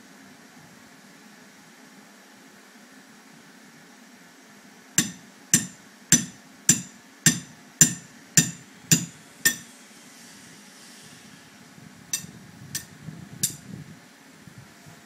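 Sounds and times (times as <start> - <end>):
hammer striking metal stake: 5.0 - 9.7, 12.2 - 13.6.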